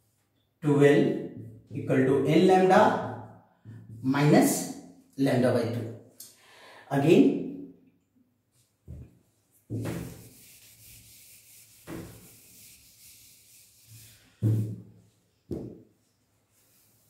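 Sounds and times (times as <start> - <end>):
duster rubbing on whiteboard: 9.6 - 14.9, 16.5 - 17.0.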